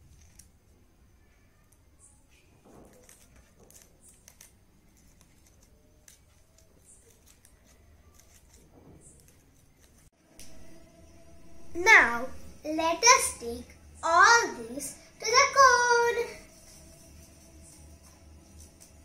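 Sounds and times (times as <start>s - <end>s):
paper strips rustling: 2.7s - 10.1s, 14.7s - 19.0s.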